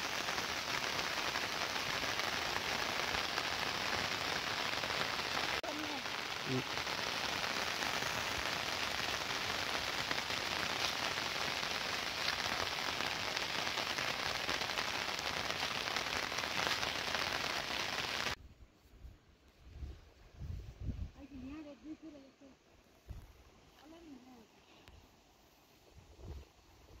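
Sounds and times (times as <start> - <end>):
rain pattering on a surface: 0.0 - 18.4.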